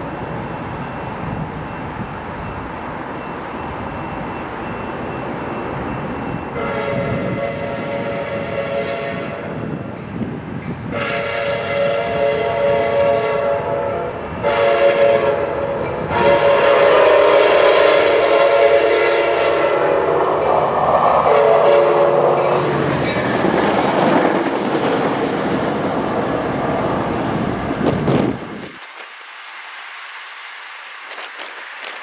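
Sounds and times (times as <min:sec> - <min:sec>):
train horn blasts: 0:06.5 - 0:09.7, 0:10.9 - 0:22.6
train wheels clacking on rails: 0:18.2 - 0:32.0.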